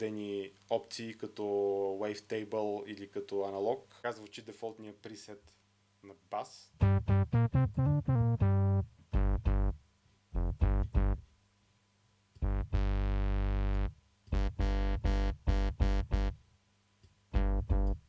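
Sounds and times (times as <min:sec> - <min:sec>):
synthesizer bass notes: 0:06.8 - 0:09.8, 0:10.4 - 0:11.2, 0:12.4 - 0:16.4, 0:17.3 - 0:18.0.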